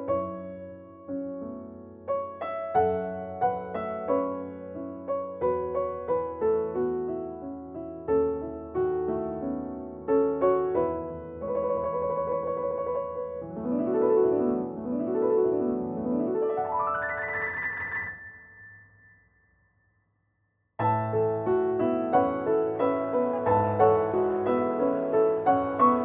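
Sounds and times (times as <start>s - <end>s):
piano music: 0.0s - 18.9s, 20.8s - 26.0s.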